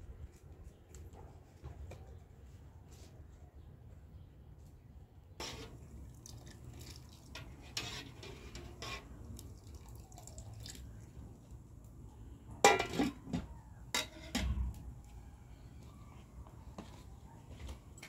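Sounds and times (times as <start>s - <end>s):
ladle stirring soup in pot: 5.4s - 11.8s, 12.6s - 14.6s
liquid dripping: 5.9s - 7.5s, 9.2s - 11.9s
pot lid clanking: 12.6s - 13.4s.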